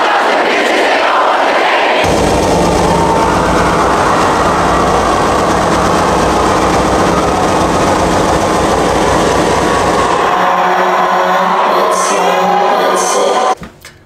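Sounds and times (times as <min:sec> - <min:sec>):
crowd cheering and yelling: 0:00.0 - 0:13.6
low bass drone: 0:02.0 - 0:12.1.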